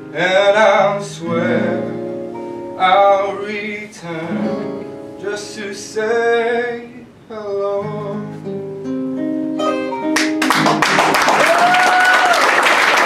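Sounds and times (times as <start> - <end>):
guitars playing: 0.0 - 6.8, 7.6 - 11.2
applause: 10.2 - 13.0.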